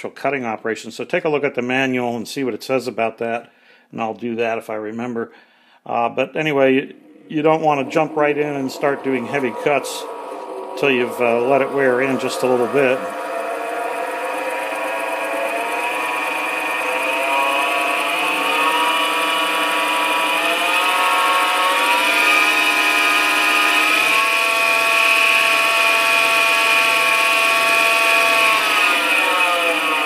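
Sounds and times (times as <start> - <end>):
steady high-pitched whine: 6.6 - 21.8
lathe motor whining: 6.8 - 30.0.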